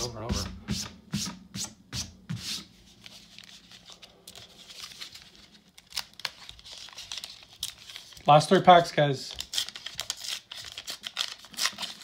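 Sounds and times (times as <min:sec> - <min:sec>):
cards rustling: 0:02.6 - 0:12.0
foil wrapper crinkling: 0:03.2 - 0:12.0.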